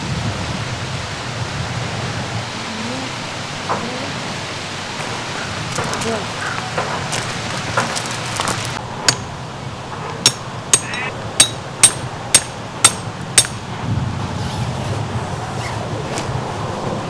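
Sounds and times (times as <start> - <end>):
hammer striking metal stake: 9.0 - 9.3, 10.2 - 13.6.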